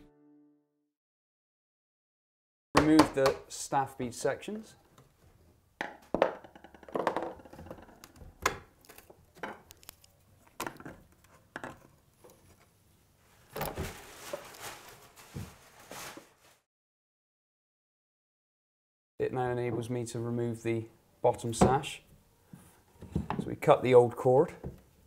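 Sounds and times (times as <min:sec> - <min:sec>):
wooden knocks and clicks: 0:05.8 - 0:09.7.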